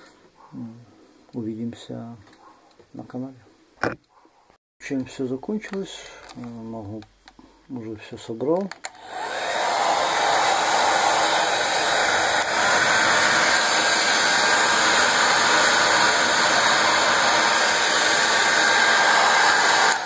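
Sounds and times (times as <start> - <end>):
hair dryer running: 8.9 - 20.0.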